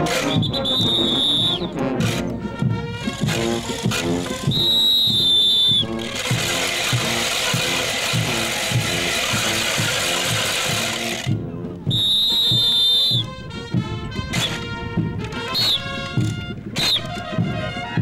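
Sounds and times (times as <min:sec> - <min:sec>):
band music with drumbeat: 0:00.0 - 0:18.0
long high whistle blast: 0:00.3 - 0:01.7, 0:04.4 - 0:06.1, 0:11.9 - 0:13.4
wooden ratchets rattling: 0:03.3 - 0:11.3.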